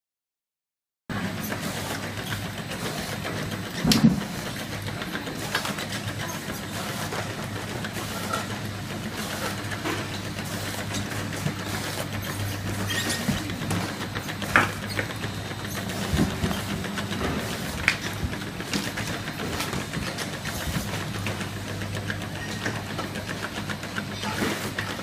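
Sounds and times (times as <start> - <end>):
motor and conveyor hum: 1.1 - 25.0
machine thump: 3.8 - 4.3.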